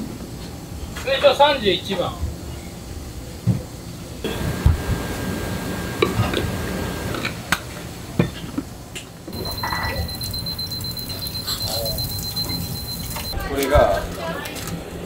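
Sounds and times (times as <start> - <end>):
kitchen room noise: 0.0 - 15.0
thin high tone: 9.3 - 13.4
crockery clinking: 9.4 - 13.4.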